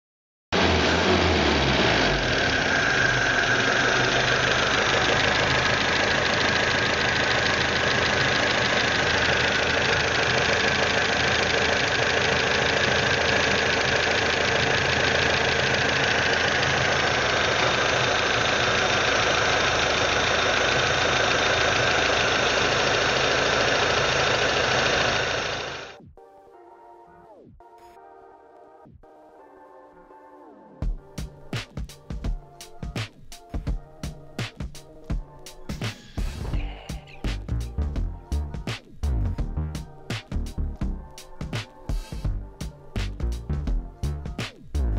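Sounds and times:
car engine idling: 0.6s - 26.0s
faint music: 26.2s - 44.9s.

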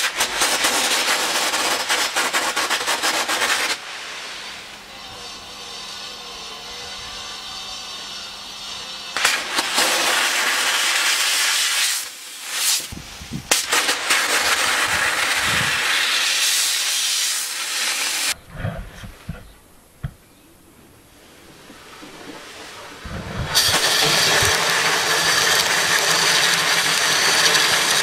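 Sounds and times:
sandblaster hissing: 0.0s - 18.7s, 21.2s - 28.0s.

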